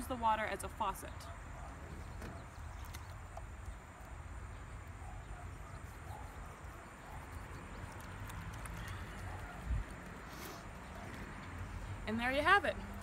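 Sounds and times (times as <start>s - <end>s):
wind rumble on microphone: 8.4s - 10.3s.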